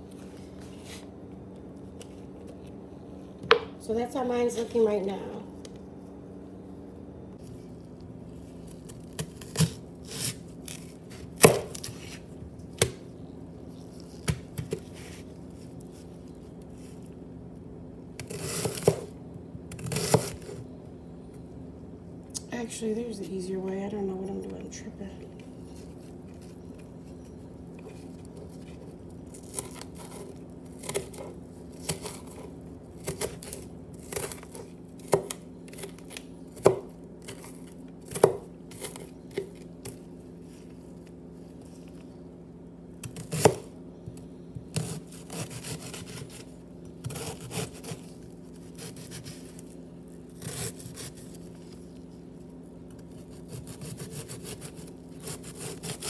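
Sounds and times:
steady low hum: 0.0 - 56.0
knife chopping onion on board: 11.4 - 12.2, 36.6 - 37.4.

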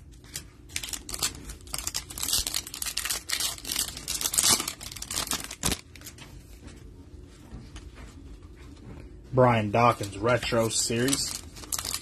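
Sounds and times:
foil wrapper crinkling and tearing: 0.0 - 6.2, 9.9 - 12.0.

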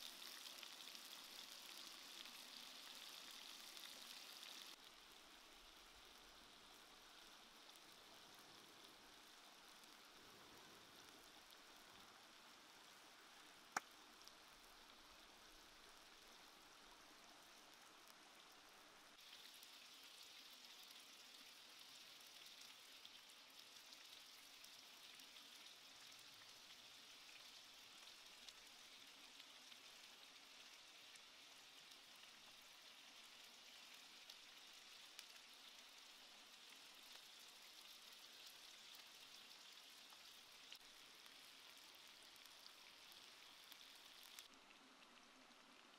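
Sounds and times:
chicken sizzling in oil: 0.0 - 44.6.

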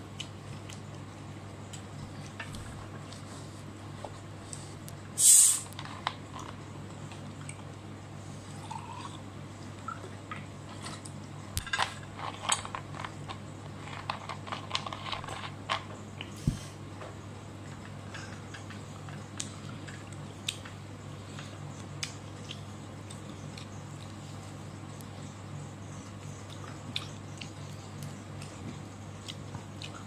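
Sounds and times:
low steady hum: 0.0 - 30.0
short loud hiss: 5.2 - 5.7.

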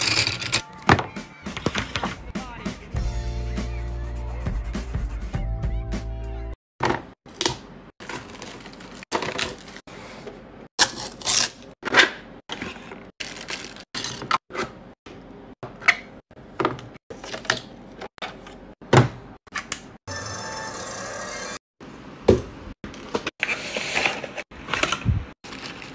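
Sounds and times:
plastic bag crinkling: 13.2 - 13.8.

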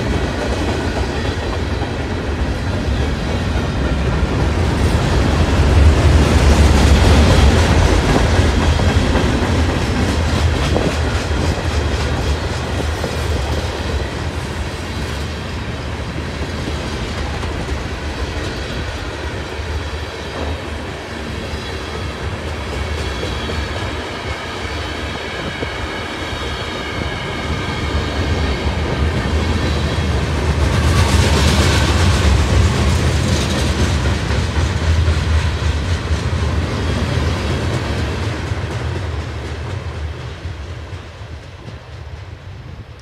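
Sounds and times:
freight train wheels rumbling: 0.0 - 43.0
high ringing from train wheels: 0.0 - 43.0.

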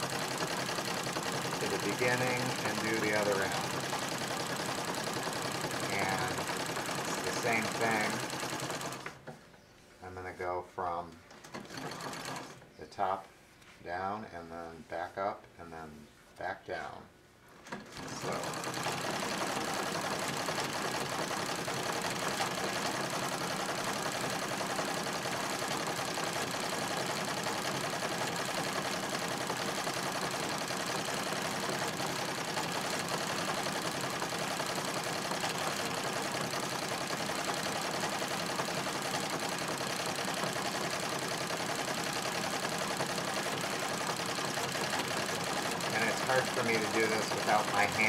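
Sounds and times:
sewing machine clattering: 0.0 - 9.4, 11.3 - 12.6, 17.6 - 48.0.

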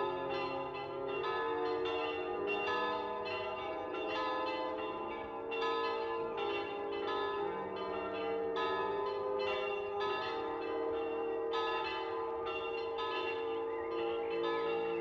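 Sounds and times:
church bells pealing: 0.0 - 15.0.

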